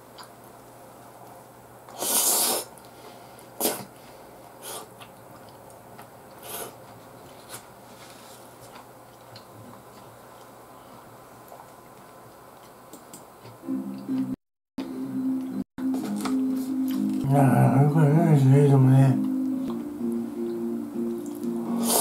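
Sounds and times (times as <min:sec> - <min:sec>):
low room hum: 0:00.0 - 0:22.0
man eating mouth sounds: 0:03.6 - 0:04.0.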